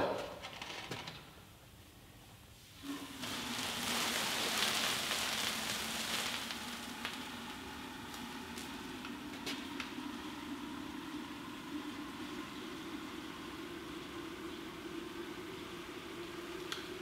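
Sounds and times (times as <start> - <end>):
liquid nitrogen hissing in kettle: 2.5 - 17.0.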